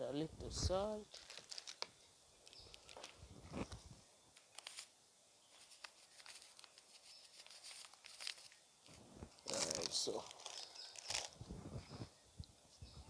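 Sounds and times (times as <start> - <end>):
plastic packet crinkling: 1.0 - 3.8, 4.4 - 4.9, 5.5 - 11.4.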